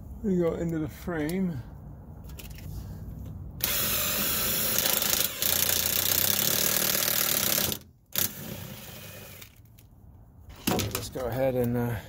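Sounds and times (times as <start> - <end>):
power driver whirring: 3.6 - 9.5.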